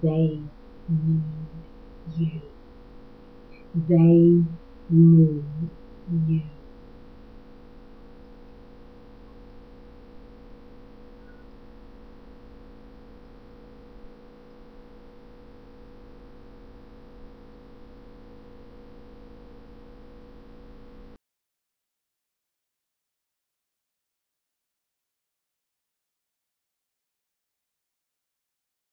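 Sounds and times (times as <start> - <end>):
electrical hum: 0.0 - 21.2.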